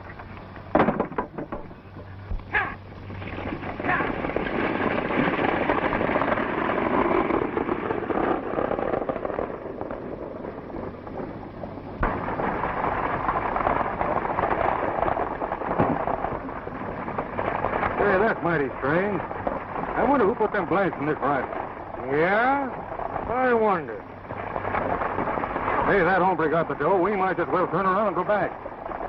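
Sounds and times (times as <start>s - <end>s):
coach wheels rumbling on dirt: 0.0s - 29.0s
horses galloping: 0.0s - 29.0s.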